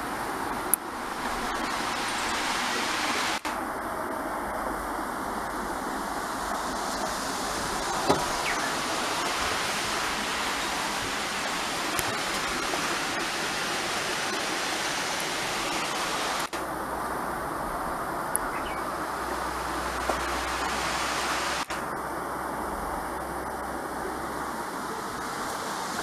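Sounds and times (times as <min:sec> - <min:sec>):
water jetting from burst pipe: 0:06.1 - 0:16.6.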